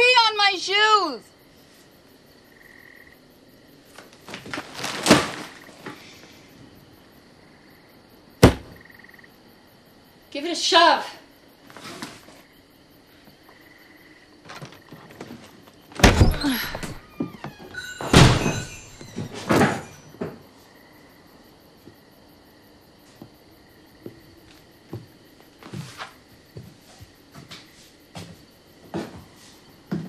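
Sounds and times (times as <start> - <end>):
heavy thumps on door: 8.4 - 8.8
door rattling: 14.3 - 20.4.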